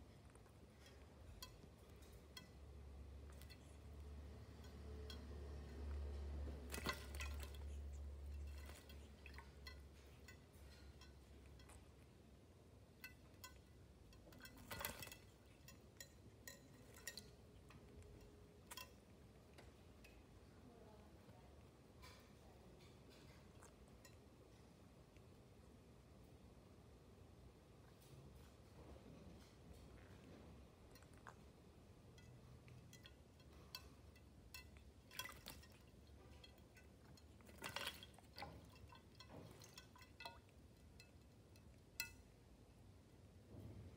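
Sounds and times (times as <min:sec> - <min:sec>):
water drips: 0:00.1 - 0:20.6, 0:30.1 - 0:43.0
clinks against glass: 0:32.1 - 0:42.3
bird splashing in water: 0:35.1 - 0:35.9.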